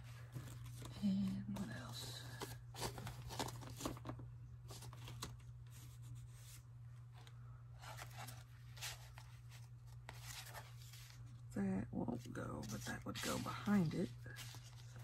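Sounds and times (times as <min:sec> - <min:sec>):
steady low hum: 0:00.0 - 0:15.0
paper rustling and scraping: 0:02.4 - 0:11.4, 0:12.4 - 0:15.0.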